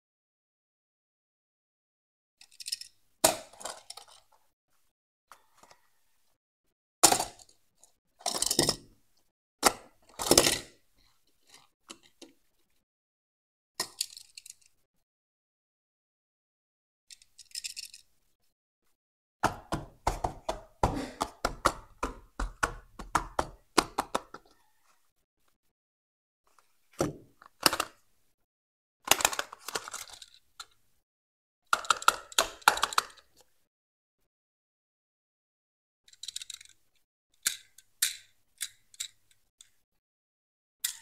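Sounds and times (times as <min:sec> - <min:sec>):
toy cars knocking and clicking: 0:02.4 - 0:04.4, 0:07.0 - 0:09.0, 0:09.6 - 0:10.8, 0:13.8 - 0:14.8, 0:17.1 - 0:18.2, 0:19.4 - 0:24.5, 0:27.0 - 0:28.0, 0:29.1 - 0:30.8, 0:31.7 - 0:33.5, 0:36.1 - 0:39.8.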